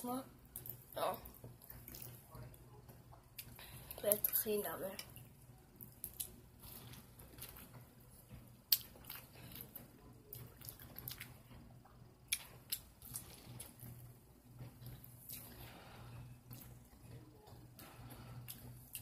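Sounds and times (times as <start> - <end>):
person chewing corn: 1.6 - 2.5, 5.8 - 19.0.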